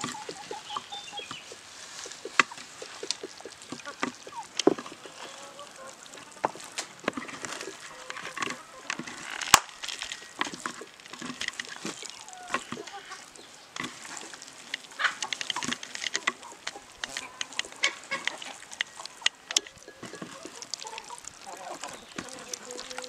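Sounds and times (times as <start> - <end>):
fingers and bones scraping metal: 0.0 - 5.5
hand squelching in wet marinade: 0.0 - 23.0.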